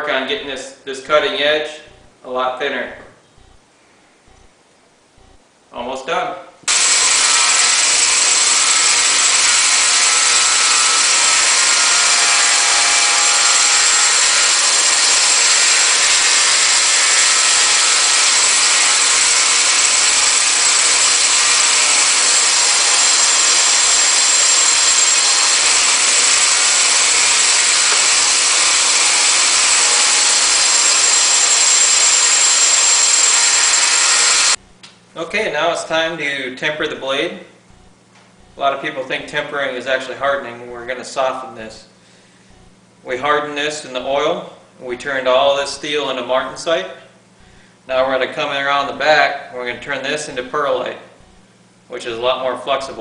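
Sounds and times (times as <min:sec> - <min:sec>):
belt grinder grinding steel: 0:06.7 - 0:34.6.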